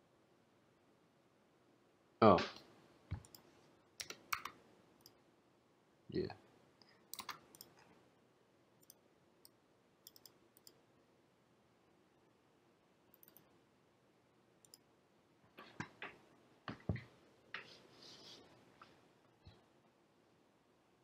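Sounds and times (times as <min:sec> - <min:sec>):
computer mouse clicks: 0:03.1 - 0:05.2, 0:07.1 - 0:07.9, 0:08.8 - 0:10.8, 0:13.1 - 0:13.5, 0:14.6 - 0:14.8.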